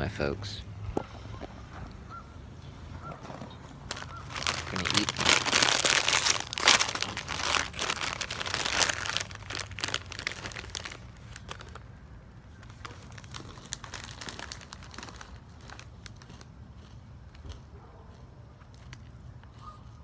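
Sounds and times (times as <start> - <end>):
snack bag crinkling: 3.8 - 11.9, 12.5 - 17.6.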